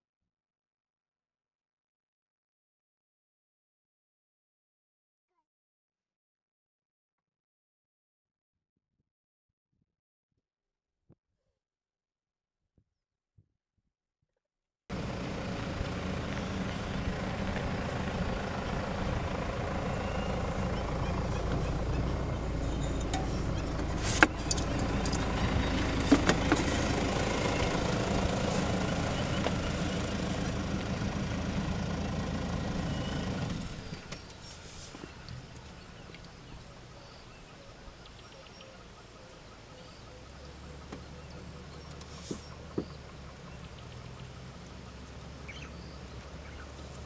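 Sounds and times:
vehicle engine idling: 14.9s - 47.0s.

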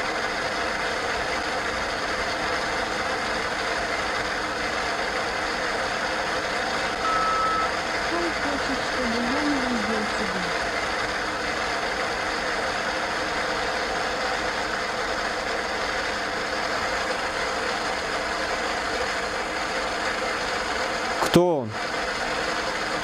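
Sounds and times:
faint steady tones: 6.7s - 10.8s.

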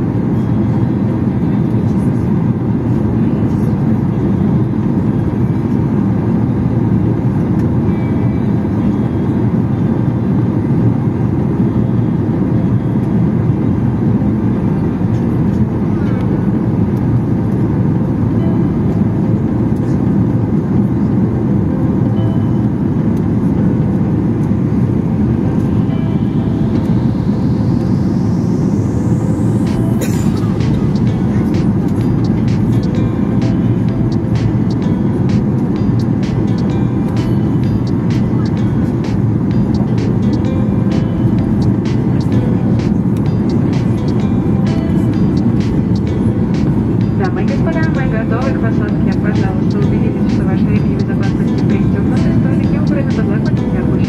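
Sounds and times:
airplane cabin engine noise: 0.0s - 54.0s
faint rising whine: 21.6s - 54.0s.

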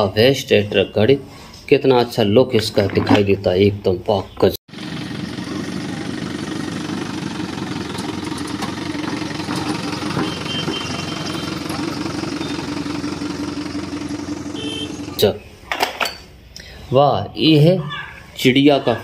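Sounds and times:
truck engine running: 4.7s - 15.3s.

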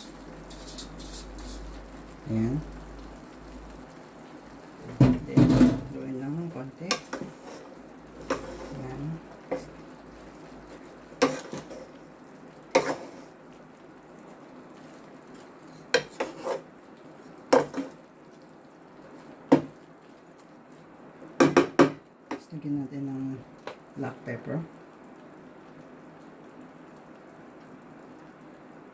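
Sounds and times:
faint steady hiss: 0.0s - 28.9s
wooden spatula knocking metal pot: 21.4s - 22.0s.

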